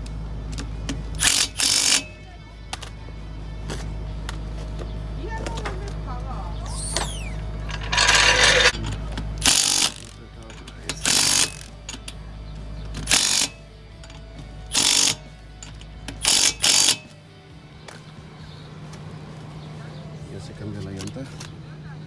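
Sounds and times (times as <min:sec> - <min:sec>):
power tool bursts: 0:01.2 - 0:02.1, 0:09.4 - 0:10.2, 0:11.0 - 0:11.7, 0:13.1 - 0:13.6, 0:14.7 - 0:15.2, 0:16.2 - 0:17.1.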